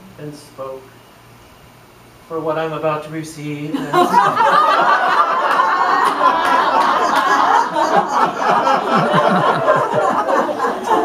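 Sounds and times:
crowd laughing: 0:03.8 - 0:11.0.

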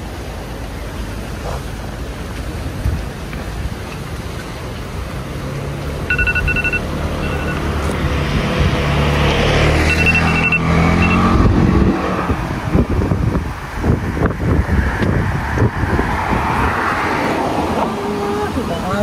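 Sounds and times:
vehicle engine pulling away: 0:01.0 - 0:18.1
short electronic beeps: 0:06.1 - 0:07.7, 0:09.9 - 0:11.3.

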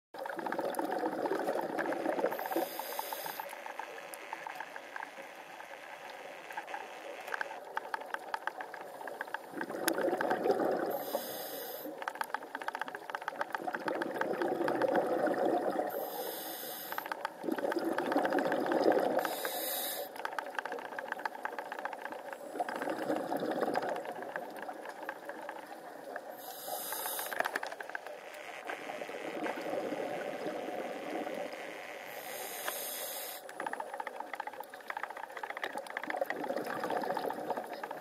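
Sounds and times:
exhaled bubbles hissing: 0:00.2 - 0:04.0, 0:08.8 - 0:12.1, 0:13.6 - 0:20.4, 0:22.2 - 0:27.8, 0:28.8 - 0:31.5, 0:32.1 - 0:38.0
faint crackle of fine ticks: 0:00.2 - 0:38.0
scuba breathing through regulator: 0:02.3 - 0:03.5, 0:10.9 - 0:12.0, 0:15.9 - 0:17.1, 0:19.2 - 0:20.2, 0:26.4 - 0:27.6, 0:32.1 - 0:33.5.

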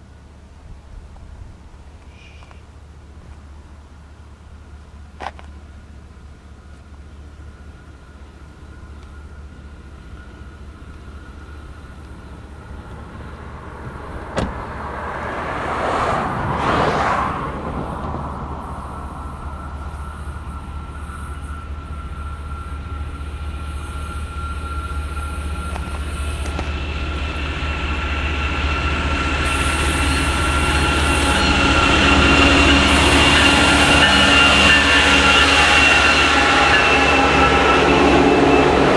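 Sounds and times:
locomotive engine rumble: 0:00.0 - 0:38.9
rail noise: 0:00.0 - 0:38.9.

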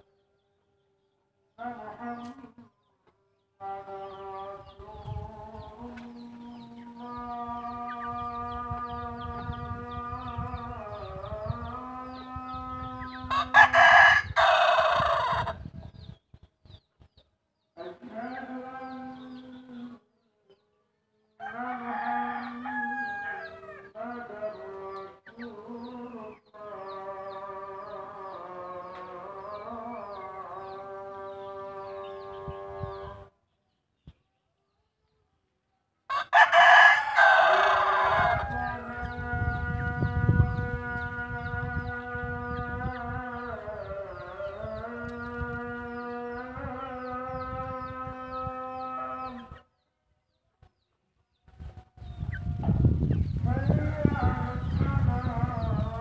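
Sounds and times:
rooster crowing: 0:13.3 - 0:15.6, 0:21.4 - 0:24.1, 0:36.1 - 0:39.2.

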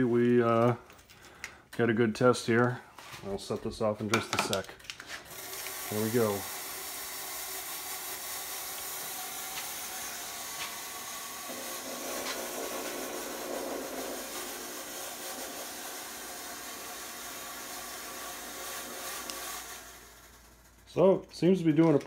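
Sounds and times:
fog machine hissing: 0:05.3 - 0:21.7.

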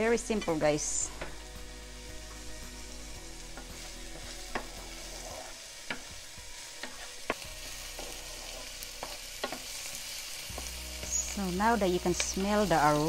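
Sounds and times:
food sizzling in hot oil: 0:00.0 - 0:13.0
utensil scraping and tapping pan: 0:06.8 - 0:07.4.

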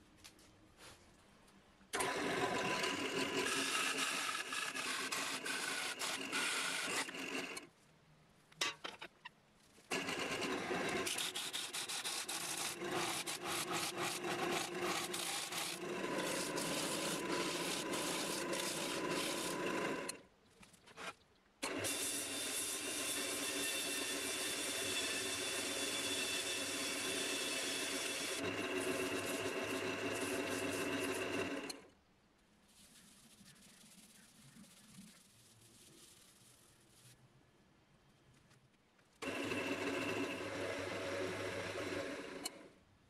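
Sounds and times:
lathe tool scraping wood: 0:02.0 - 0:07.6, 0:09.9 - 0:20.2, 0:21.0 - 0:31.8, 0:39.2 - 0:42.6.

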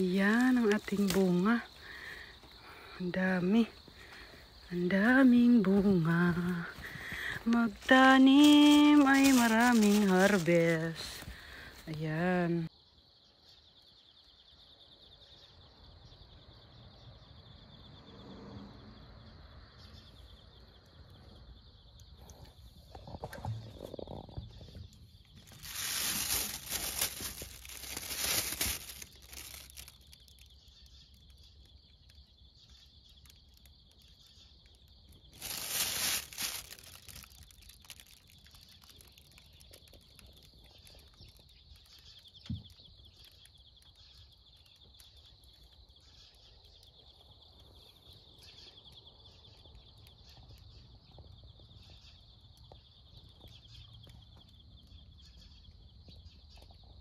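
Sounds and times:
plastic bag rustling: 0:00.0 - 0:01.4, 0:06.8 - 0:11.4, 0:25.4 - 0:30.2, 0:35.3 - 0:39.4.

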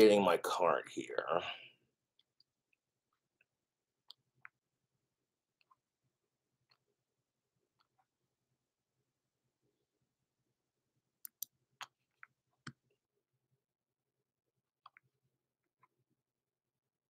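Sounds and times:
computer clicks: 0:11.2 - 0:11.5.

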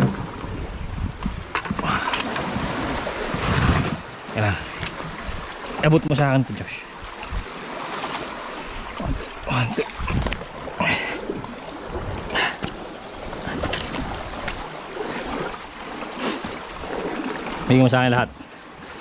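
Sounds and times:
wind on microphone: 0:00.0 - 0:05.6, 0:07.0 - 0:07.6, 0:08.7 - 0:15.7
sea water sloshing: 0:00.0 - 0:19.0.

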